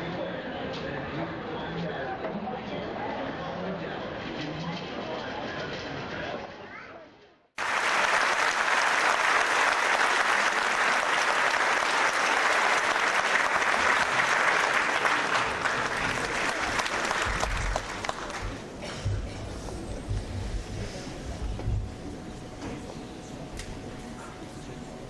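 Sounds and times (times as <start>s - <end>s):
audience applauding: 7.6s - 18.7s.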